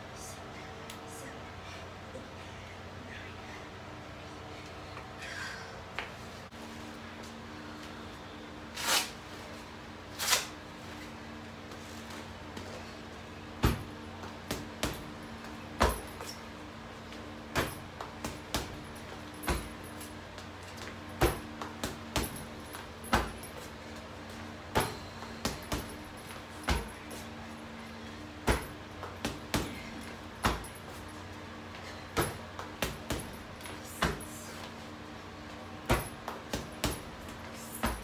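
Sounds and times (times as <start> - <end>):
punches thudding into heavy bag: 19.4 - 19.8, 21.2 - 23.5, 26.6 - 27.0, 28.4 - 30.8.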